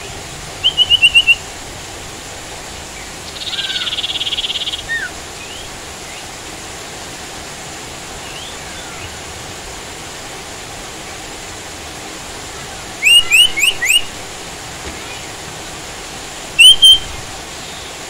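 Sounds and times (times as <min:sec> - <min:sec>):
songbird calling: 0:00.0 - 0:01.5, 0:02.9 - 0:06.4, 0:08.2 - 0:09.3, 0:12.5 - 0:14.3, 0:16.5 - 0:18.0
rain hiss: 0:00.0 - 0:18.0.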